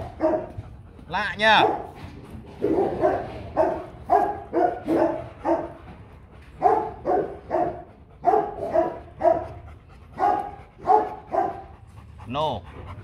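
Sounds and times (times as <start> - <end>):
dog barking: 0.0 - 0.5, 1.5 - 2.0, 2.6 - 5.8, 6.6 - 9.6, 10.2 - 11.7.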